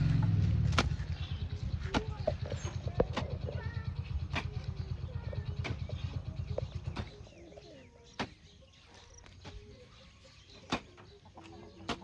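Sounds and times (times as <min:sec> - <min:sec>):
birds calling: 0:00.0 - 0:12.0
hoe chopping into soil: 0:00.3 - 0:01.2.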